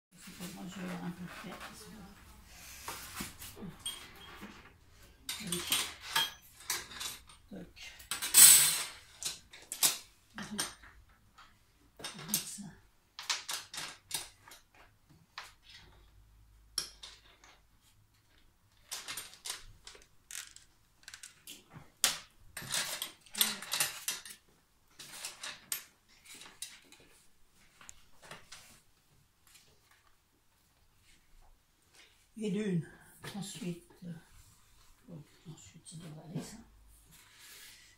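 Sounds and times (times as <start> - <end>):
metal clinks and scrapes: 3.1 - 12.6, 22.6 - 27.2.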